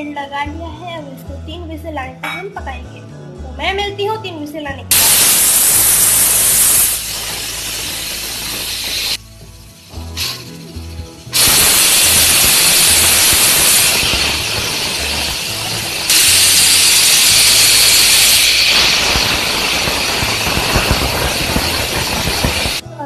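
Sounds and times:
pressure cooker whistling: 4.9 - 22.8.

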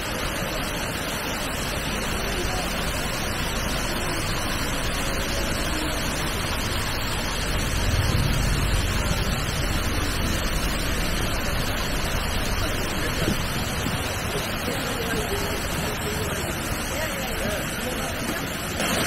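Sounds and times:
waterfall rushing into pool: 0.0 - 19.0
low rumble: 3.4 - 14.4.

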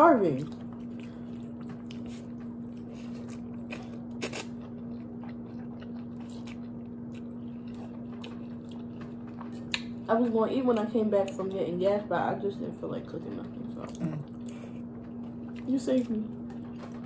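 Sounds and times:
steady low hum: 0.0 - 17.0
chewing and slurping noodles: 0.3 - 10.0.

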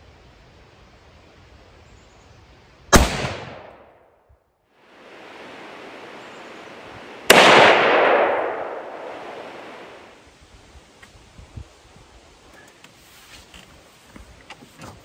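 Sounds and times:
rifle shots echoing: 2.9 - 3.9, 7.0 - 10.1.

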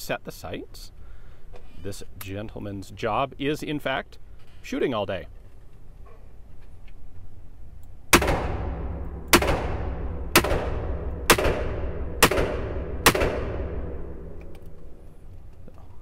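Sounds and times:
revolver shots: 8.1 - 14.4
gunshot echo: 8.1 - 15.0.

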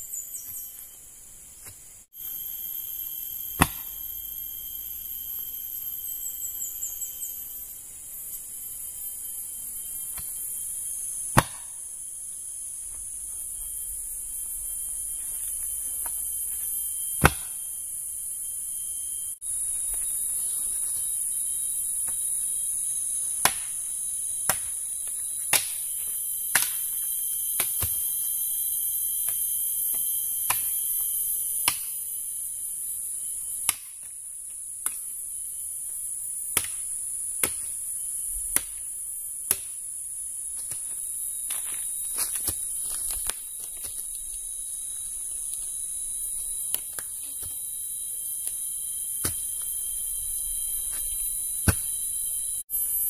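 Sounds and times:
high buzz of forest insects: 0.0 - 53.0
machete chopping wooden poles: 3.6 - 3.9, 11.3 - 11.8, 17.2 - 17.6, 23.4 - 23.8, 24.4 - 24.8, 25.5 - 26.9, 31.6 - 32.0, 33.6 - 34.1, 36.5 - 37.8, 39.4 - 39.8, 51.6 - 51.9.

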